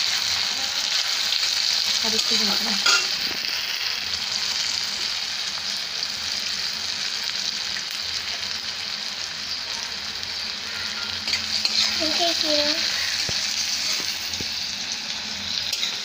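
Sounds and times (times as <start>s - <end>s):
vegetables sizzling in hot oil: 0.0s - 16.0s
metal spatula stirring: 11.2s - 12.2s, 15.7s - 16.0s.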